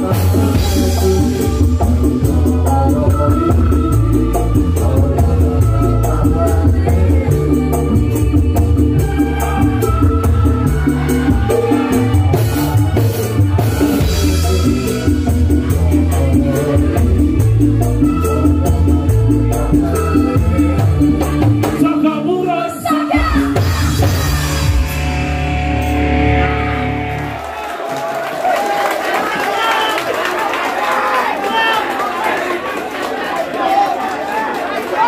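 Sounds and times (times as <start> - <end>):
heavy bass: 0.0 - 22.3, 23.1 - 27.6
keyboards: 0.0 - 27.9
live band playing loudly: 0.0 - 28.0.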